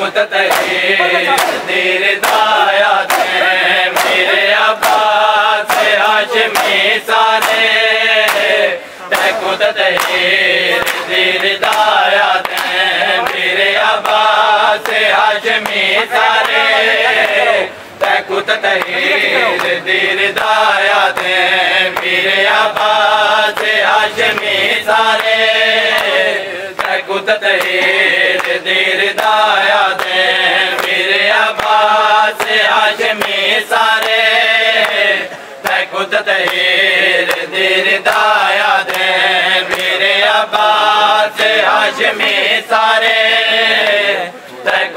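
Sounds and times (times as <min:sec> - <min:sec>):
men chanting a lament: 0:00.0 - 0:44.9
hands slapping chests: 0:00.5 - 0:08.5, 0:09.1 - 0:16.6, 0:39.7 - 0:40.0.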